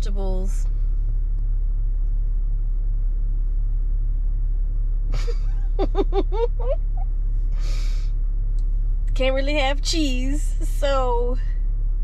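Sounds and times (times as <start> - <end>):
low hum: 0.0 - 12.0
low rumble: 0.0 - 12.0
person breathing: 7.5 - 8.1.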